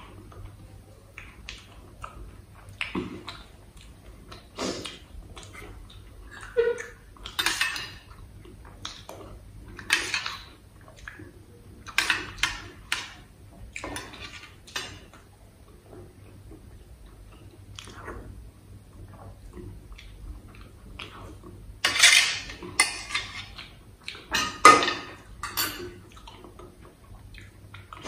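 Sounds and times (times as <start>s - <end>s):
mouth sounds of eating: 0.0s - 7.4s, 15.6s - 21.7s.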